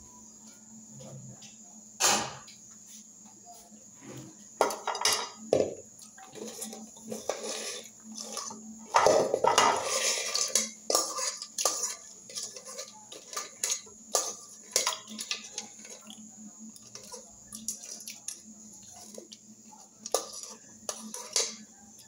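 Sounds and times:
utensil scraping metal pot: 6.2s - 22.0s.

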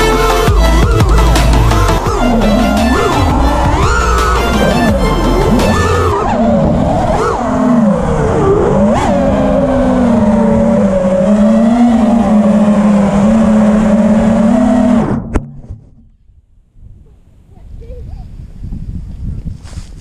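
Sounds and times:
drone motors whining: 0.0s - 15.7s.

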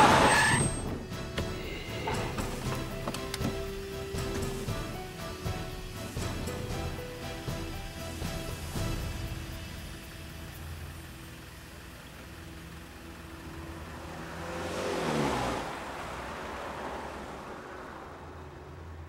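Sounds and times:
car engine and tyre noise passing: 0.0s - 19.0s
low music drone: 0.8s - 14.8s.

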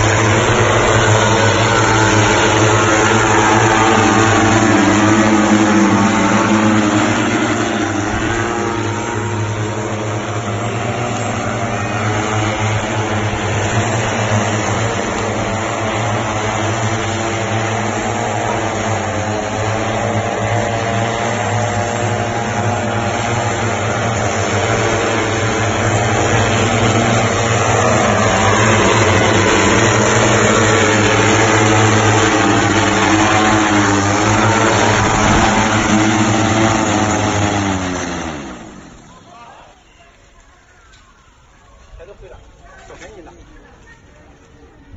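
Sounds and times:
hoverbike propellers buzzing: 0.0s - 44.9s.

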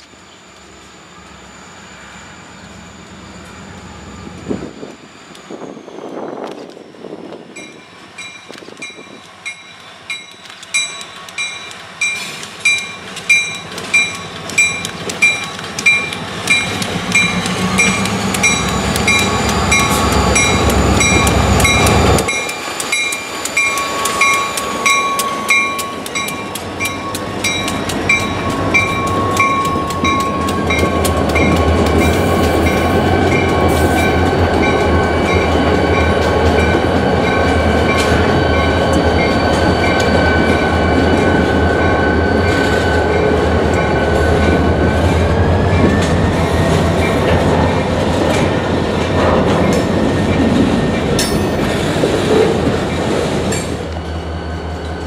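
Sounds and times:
diesel locomotive engines rumbling: 0.0s - 55.0s
train wheels clacking on rails: 7.5s - 55.0s
metallic ringing: 51.2s - 51.8s.

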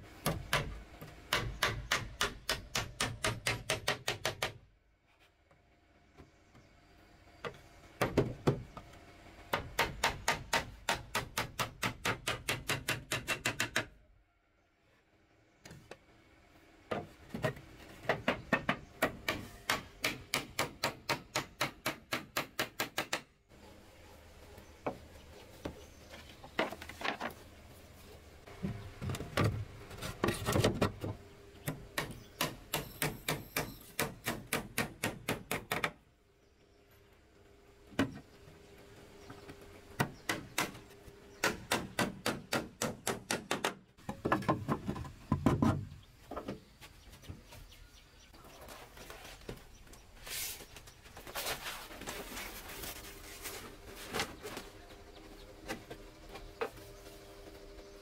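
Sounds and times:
hammer driving nails into wood: 9.6s - 13.9s, 31.7s - 36.0s, 41.4s - 43.8s.

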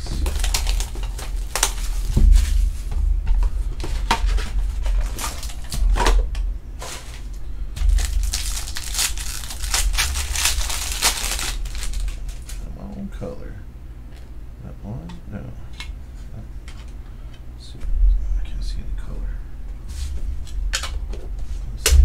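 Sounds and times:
foil wrapper crinkling and tearing: 0.0s - 2.6s, 4.9s - 5.9s, 7.0s - 12.6s.

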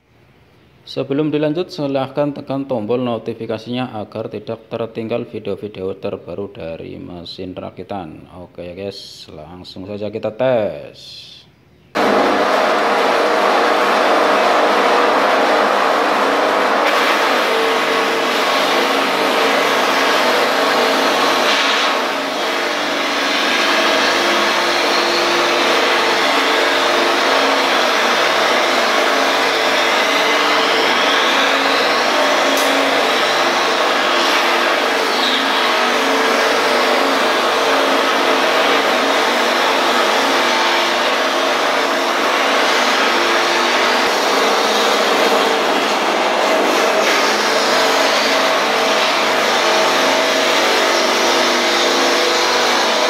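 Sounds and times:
machine whirring with hum: 11.6s - 53.0s.

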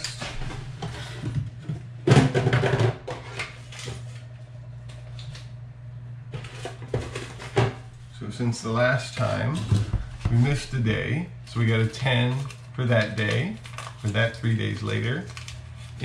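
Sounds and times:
steady low hum: 0.0s - 16.0s
canister rustling and clattering: 6.4s - 7.9s.

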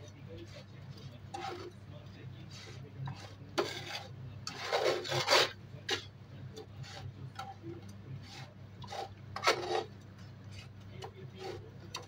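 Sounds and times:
steady low hum: 0.0s - 12.0s
metal spatula scraping a pan: 0.4s - 1.8s, 2.4s - 7.6s, 8.2s - 12.0s.

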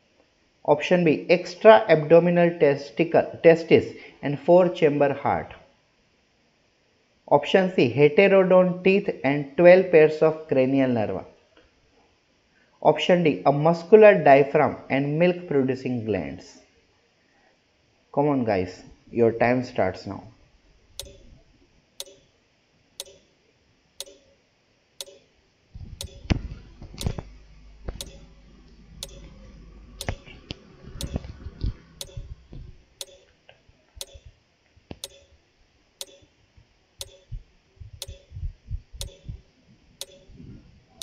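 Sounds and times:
timer ticking: 21.0s - 21.3s, 22.0s - 22.3s, 23.0s - 23.3s, 24.0s - 24.4s, 25.0s - 25.3s, 26.0s - 26.3s, 27.0s - 27.2s, 28.0s - 28.3s, 29.0s - 29.4s, 30.0s - 30.3s, 31.0s - 31.3s, 32.0s - 32.4s, 33.0s - 33.3s, 34.0s - 34.3s, 35.0s - 35.3s, 36.0s - 36.3s, 37.0s - 37.4s, 38.0s - 38.3s, 39.0s - 39.4s, 40.0s - 40.4s.

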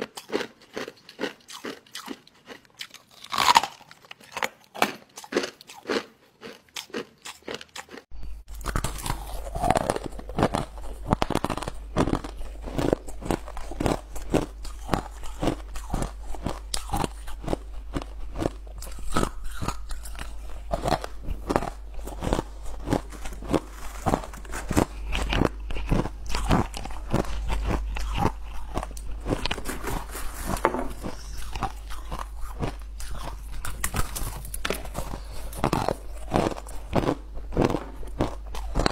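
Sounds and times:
ice being chewed: 0.0s - 38.9s
low hum: 8.1s - 38.9s.

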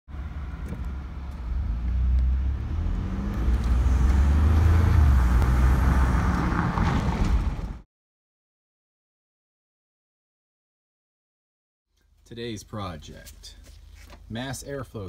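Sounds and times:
truck engine and road rumble: 0.1s - 7.8s, 12.0s - 15.0s.

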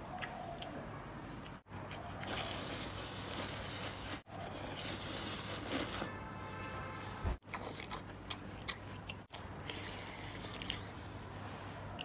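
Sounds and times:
person slurping noodles: 2.2s - 6.1s.

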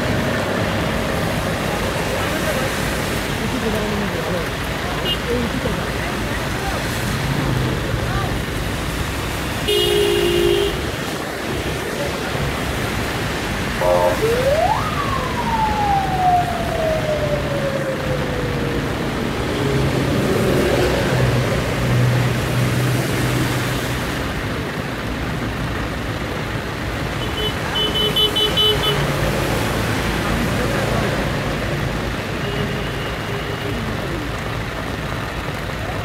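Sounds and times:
rain: 0.0s - 36.0s
tyres on a wet road: 0.0s - 36.0s
short horn toot: 13.8s - 14.2s
siren wailing: 13.8s - 19.1s.

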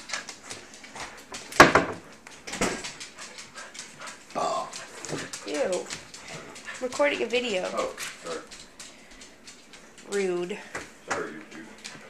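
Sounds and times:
cabinet doors knocking and banging: 1.6s - 2.0s.

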